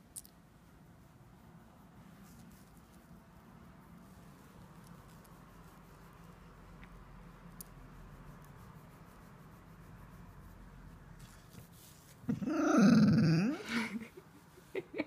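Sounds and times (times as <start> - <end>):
dog grumbling whine: 12.3 - 13.7.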